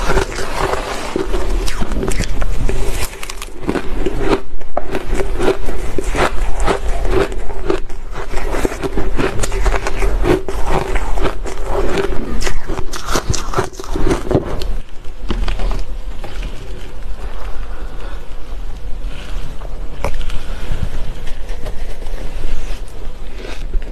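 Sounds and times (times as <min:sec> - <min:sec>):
crunching and chewing ice: 0:00.0 - 0:17.6.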